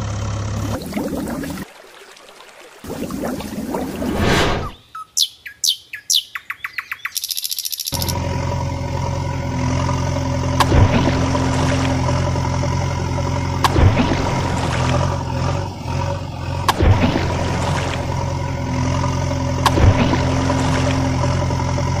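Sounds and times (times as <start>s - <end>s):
heavy machine engine drone: 0.0s - 1.6s, 8.0s - 22.0s
short swish: 4.0s - 4.8s
bird chirps and trill: 4.7s - 8.1s.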